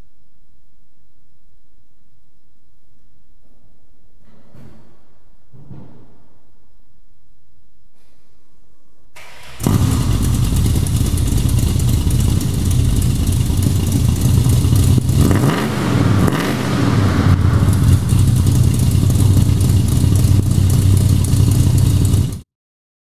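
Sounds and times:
engine throttle blips: 9.2 - 22.4
car engine idling loudly: 9.6 - 22.4.

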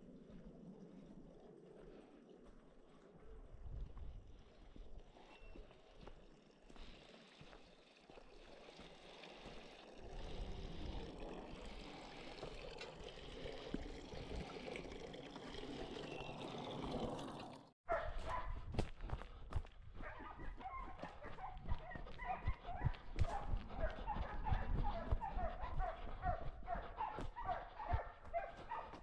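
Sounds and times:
water trickling into stone trough: 4.4 - 17.8
dogs barking: 17.9 - 18.6, 20.0 - 29.0.

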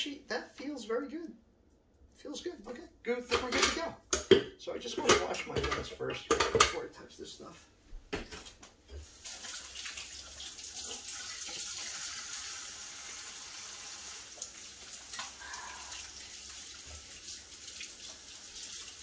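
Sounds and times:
faucet running into sink: 9.0 - 19.0.

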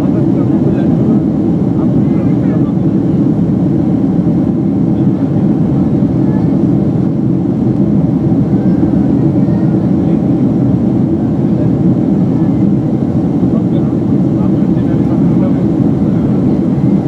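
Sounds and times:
airliner cabin engine roar: 0.0 - 17.0.

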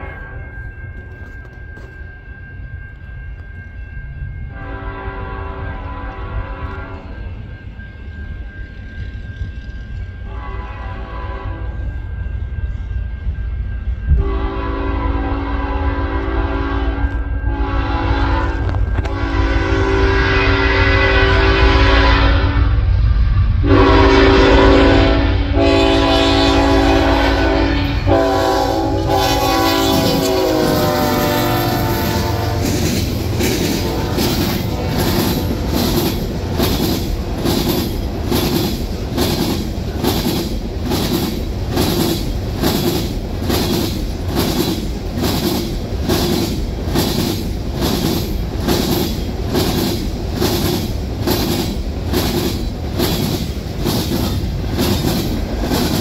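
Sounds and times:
train cars rumbling: 0.0 - 56.0
locomotive air horn chord: 4.5 - 7.2, 10.3 - 11.9, 14.1 - 22.9, 23.6 - 35.7
wheels clacking over track: 31.4 - 56.0.

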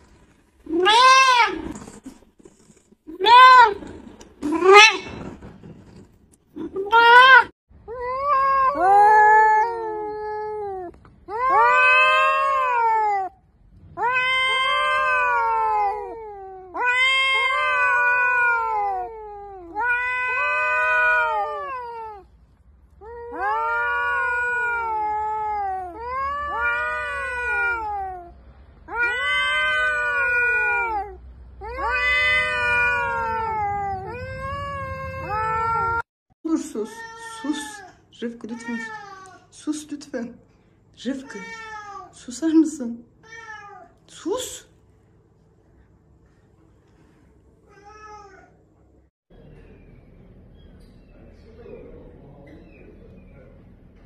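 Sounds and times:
cats yowling: 0.7 - 1.7, 3.2 - 5.2, 6.6 - 22.4, 23.0 - 36.1.

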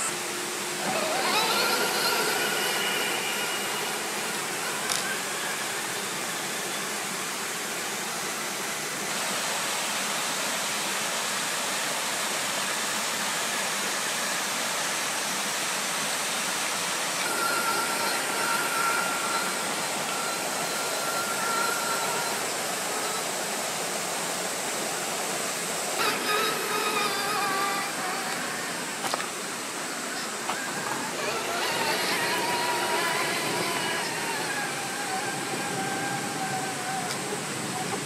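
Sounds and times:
electric motor whining: 0.0 - 9.5, 17.0 - 38.0
steady rushing noise: 15.7 - 38.0.

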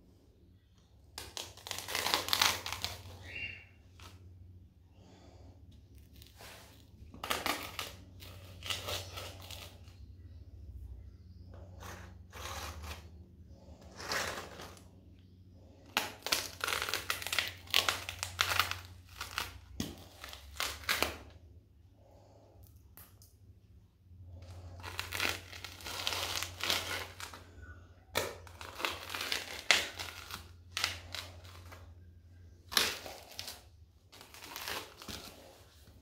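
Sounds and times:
low steady hum: 0.0 - 36.0
pretzels crunching underfoot: 1.0 - 4.2, 6.0 - 10.0, 11.8 - 15.0, 15.7 - 21.4, 24.3 - 36.0.

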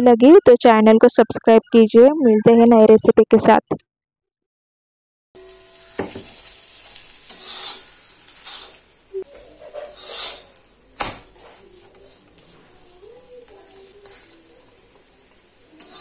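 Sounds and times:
butter sizzling on a hot pan: 5.4 - 16.0
metal spatula scraping a pan: 6.2 - 8.8, 9.6 - 10.6, 11.3 - 14.4, 15.8 - 16.0.

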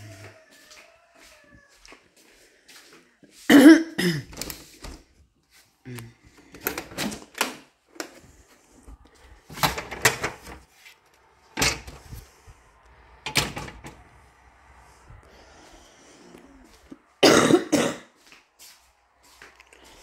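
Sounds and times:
door opening and shutting: 4.2 - 5.0, 6.6 - 7.7, 9.5 - 10.7, 11.5 - 12.2, 13.2 - 14.2.

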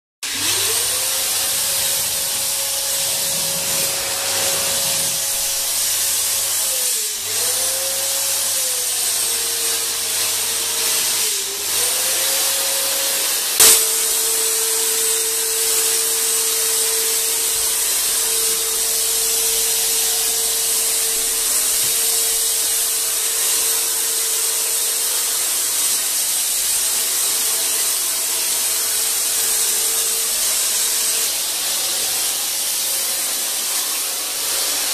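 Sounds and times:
fogger motor whine: 0.3 - 8.9, 11.4 - 25.5
spray hissing: 0.3 - 9.3, 10.8 - 34.9
sharp click: 13.6 - 13.9.

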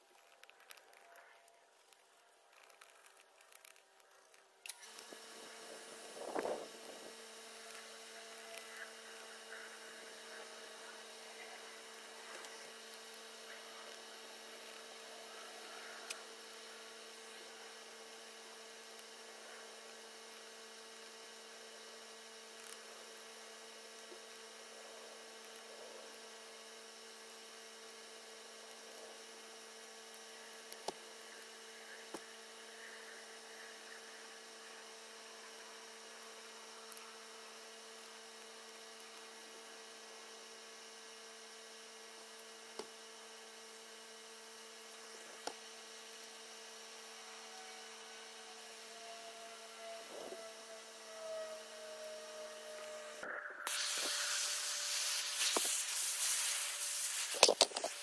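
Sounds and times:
faint electrical hum: 0.0 - 58.0.

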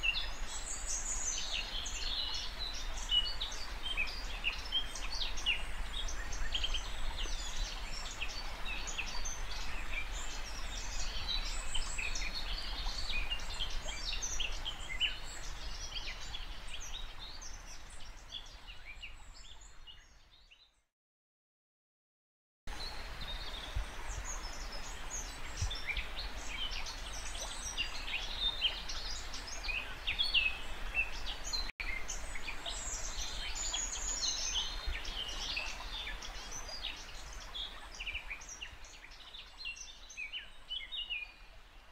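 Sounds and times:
birds singing and chirping: 22.8 - 41.5.

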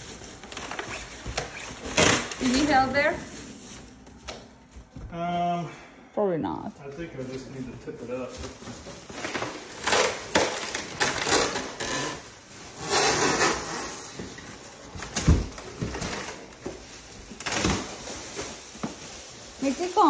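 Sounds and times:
plastic wrapping crinkling: 0.0 - 5.0, 6.8 - 20.0.

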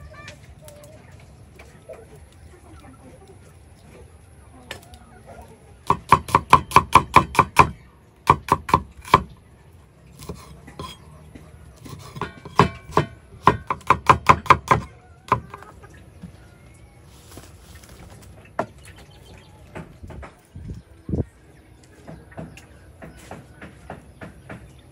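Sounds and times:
cleaver chopping on wooden board: 5.9 - 9.3, 11.8 - 15.5.

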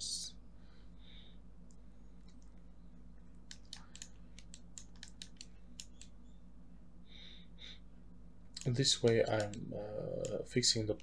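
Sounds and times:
steady low hum: 0.0 - 11.0
computer input clicks: 8.6 - 10.4.

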